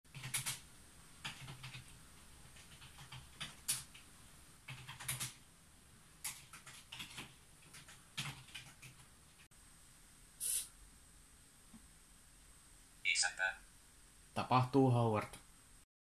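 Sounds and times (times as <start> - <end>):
typing on computer keyboard: 0.1 - 0.6, 1.2 - 4.1, 4.7 - 5.4, 6.2 - 9.1.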